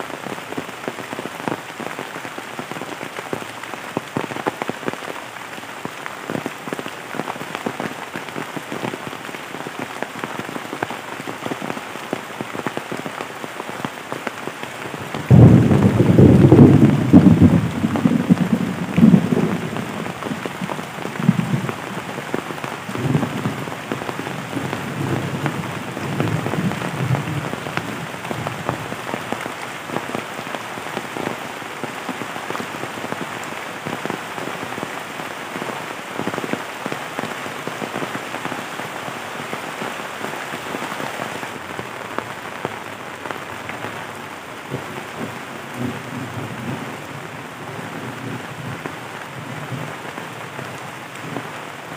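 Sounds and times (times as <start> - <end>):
heavy rain on leaves: 0.0 - 51.9.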